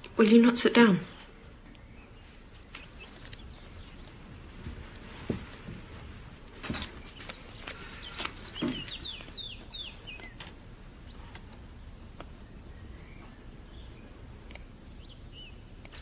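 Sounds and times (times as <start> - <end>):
low background hiss: 0.0 - 16.0
small birds chirping: 0.0 - 16.0
soft knocks and rustles: 4.5 - 10.6.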